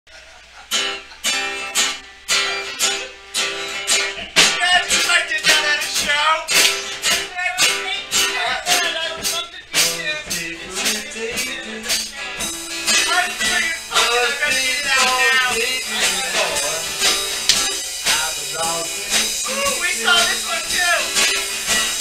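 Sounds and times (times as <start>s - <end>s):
drum kit: 0.3s - 22.0s
guitar strumming: 0.5s - 22.0s.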